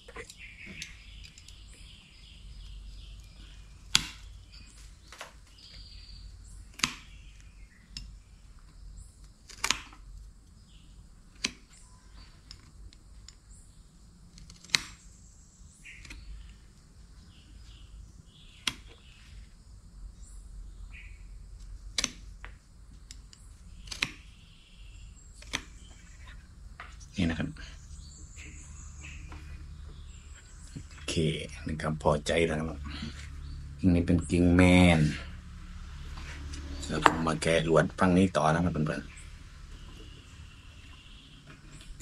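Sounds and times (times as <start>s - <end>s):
faint birds chirping: 0.0s - 42.0s
pruning shears snipping branches: 3.9s - 4.3s, 6.7s - 7.2s, 21.9s - 24.3s, 25.4s - 26.0s.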